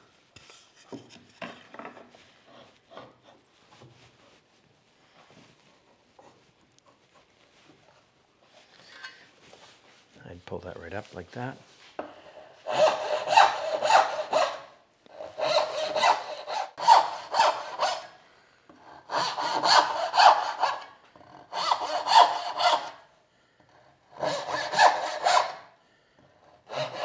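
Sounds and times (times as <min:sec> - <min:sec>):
handsaw rasping through wood: 0:12.6 - 0:18.2, 0:18.8 - 0:23.0, 0:24.0 - 0:25.7, 0:26.6 - 0:27.0.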